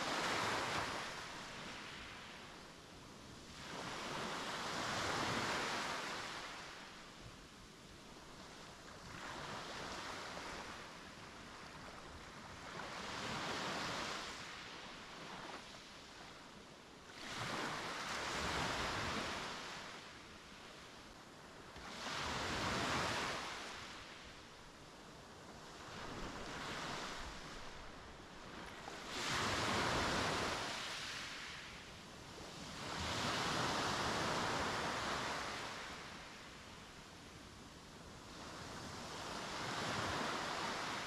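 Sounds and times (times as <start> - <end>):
sea waves breaking on beach: 0.0 - 2.5, 21.7 - 24.3, 25.6 - 36.6.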